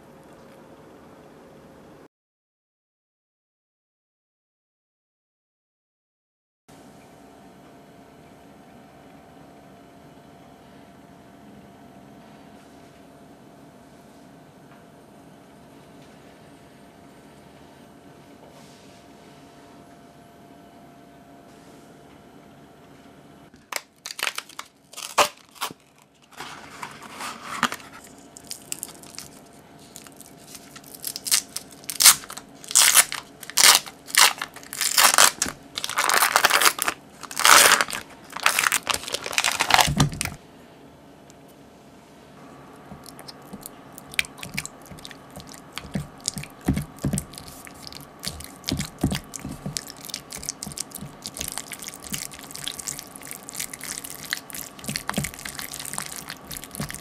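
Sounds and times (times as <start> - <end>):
foil wrapper crinkling and tearing: 23.7 - 40.4, 43.0 - 57.0.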